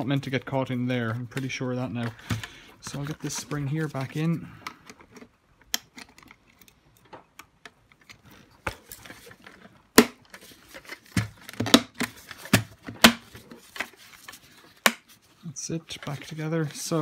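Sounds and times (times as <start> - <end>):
hard plastic parts clicking: 4.2 - 13.9.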